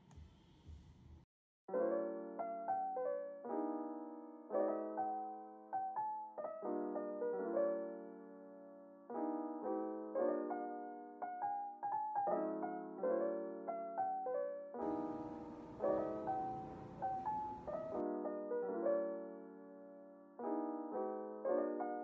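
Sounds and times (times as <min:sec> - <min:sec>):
soft piano melody: 0:01.7 - 0:22.0.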